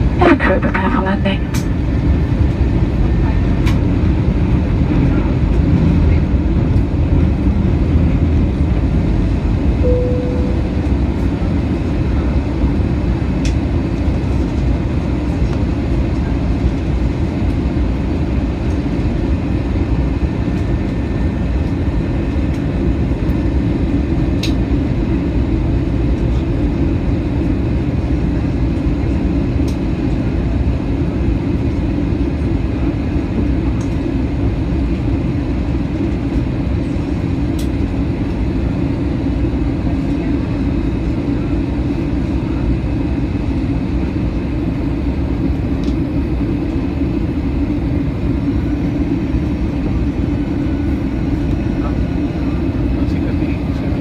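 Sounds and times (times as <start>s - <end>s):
airliner cabin engine rumble: 0.0s - 54.0s
soft tone: 9.8s - 11.3s.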